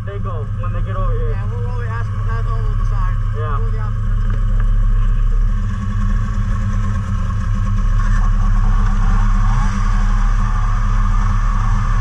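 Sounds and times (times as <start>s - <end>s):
snowmobile engines idling: 0.0s - 12.0s.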